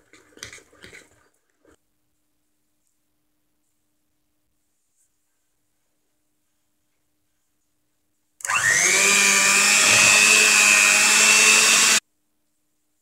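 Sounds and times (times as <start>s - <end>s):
electric hand mixer whining: 8.4s - 12.0s.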